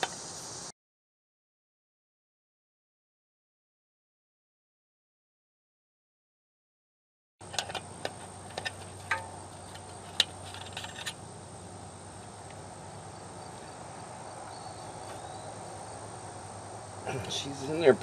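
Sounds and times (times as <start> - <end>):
faint steady hiss: 0.0 - 0.7, 7.4 - 18.0.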